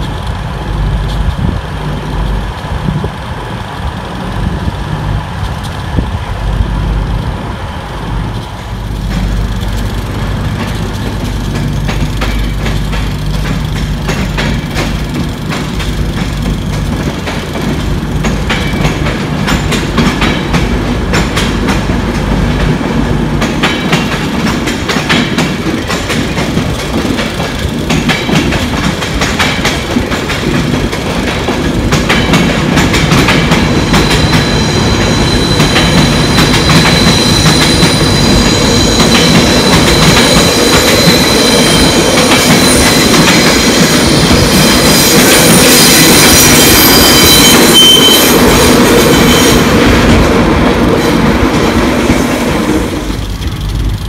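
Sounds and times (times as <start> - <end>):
train wheels clacking: 8.2 - 54.0.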